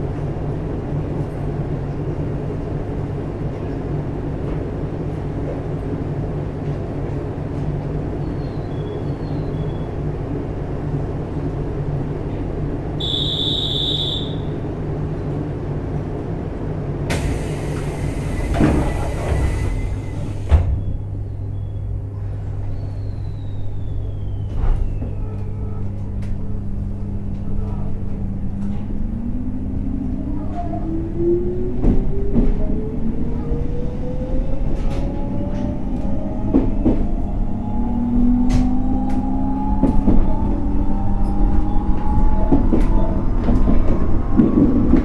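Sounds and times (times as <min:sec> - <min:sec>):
train equipment hum: 0:00.0 - 0:45.0
sliding doors closing thud: 0:17.1 - 0:21.0.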